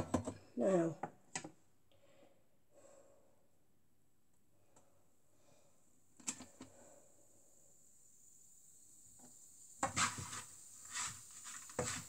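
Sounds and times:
food stirred in a pan: 9.8s - 12.0s.

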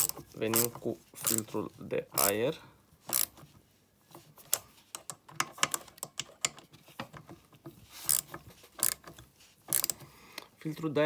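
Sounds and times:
hand ratchet clicking: 0.0s - 1.5s, 2.2s - 2.4s, 3.1s - 3.4s, 8.0s - 10.0s.

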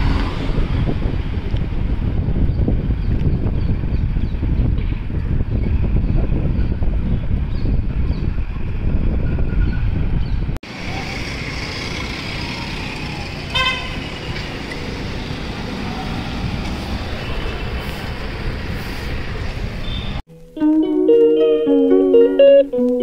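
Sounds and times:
wind buffeting microphone: 0.0s - 10.6s, 13.7s - 20.0s
street traffic: 0.0s - 23.0s
vehicle horn toot: 13.5s - 14.0s.

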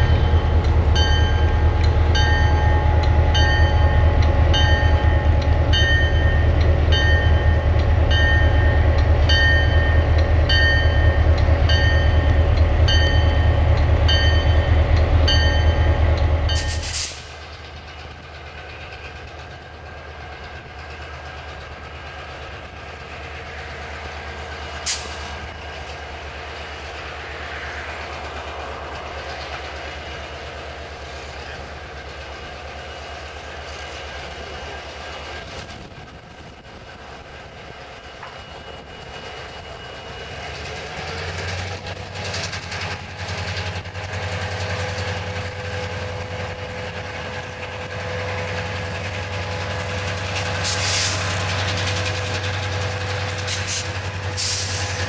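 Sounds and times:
locomotive bell ringing: 0.0s - 16.9s, 37.6s - 41.5s
diesel locomotive running: 0.0s - 55.0s.

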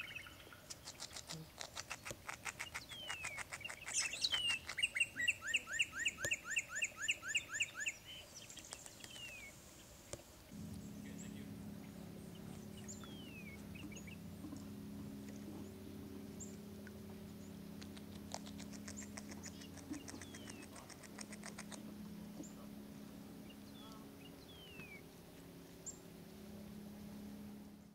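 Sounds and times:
beaver chewing on a stick: 0.6s - 6.6s, 8.4s - 23.0s
fast bird trill: 1.8s - 8.2s, 18.3s - 21.8s
steady low hum: 2.4s - 27.9s.

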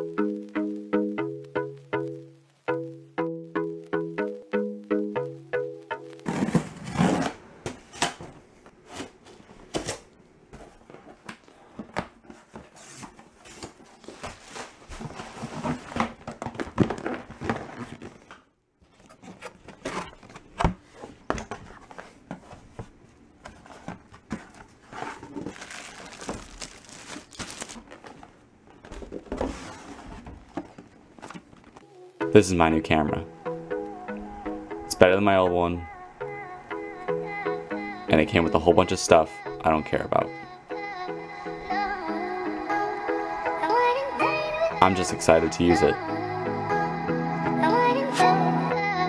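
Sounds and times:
packing tape tearing: 6.3s - 8.2s, 24.9s - 28.3s
cardboard crinkling and rustling: 10.6s - 31.8s.

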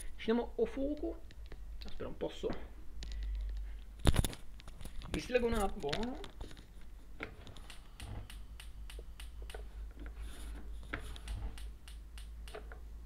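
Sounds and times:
steady low hum: 0.0s - 13.0s
microphone cable handling clicks: 0.9s - 10.2s.

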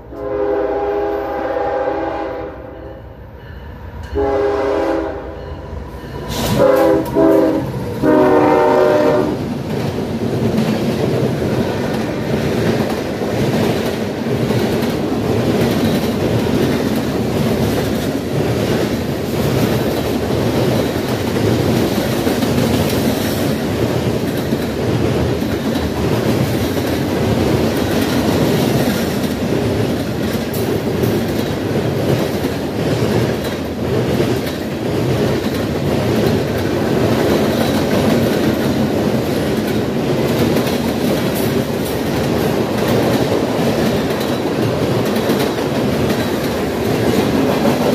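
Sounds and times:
train wheels rolling on rails: 3.3s - 47.9s.

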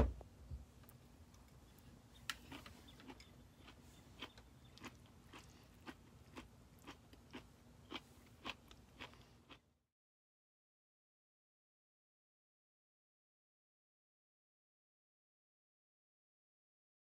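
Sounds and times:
low steady hum: 0.0s - 9.8s
faint crunchy chewing: 0.8s - 9.8s.

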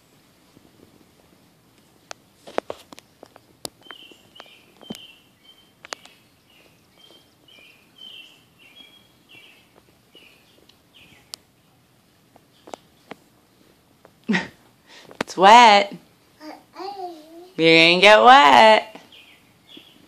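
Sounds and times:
bird chirping: 3.0s - 11.8s, 12.4s - 13.3s, 19.0s - 20.0s
sharp clicks: 5.8s - 6.2s.

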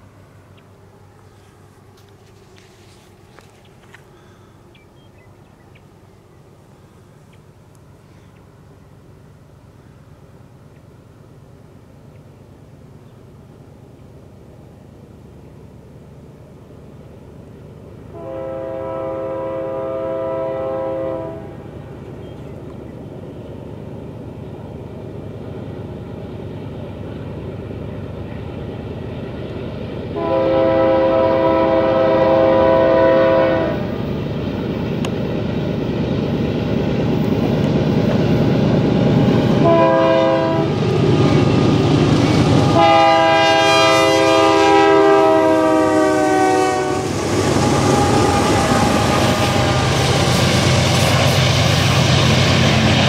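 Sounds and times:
locomotive rumble: 0.0s - 53.0s
train air horn blasts: 18.1s - 21.6s, 30.2s - 33.9s, 39.5s - 40.8s, 42.4s - 50.4s.

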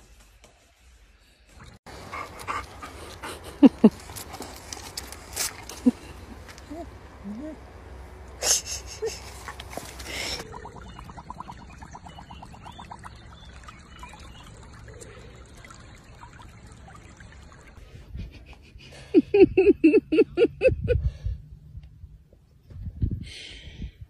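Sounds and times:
water trickling in a stream: 10.4s - 17.8s.

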